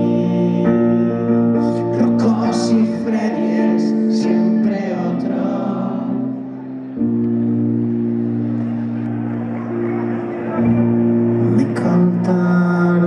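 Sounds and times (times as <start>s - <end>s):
electric guitar chords: 0.0s - 13.0s
electric keyboard chords: 0.0s - 13.0s.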